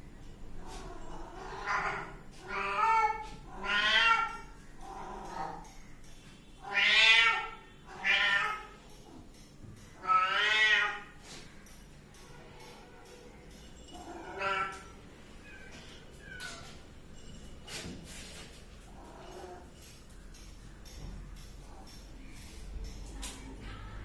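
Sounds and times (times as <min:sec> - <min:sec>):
kittens meowing: 0:01.3 - 0:05.6, 0:14.0 - 0:16.9.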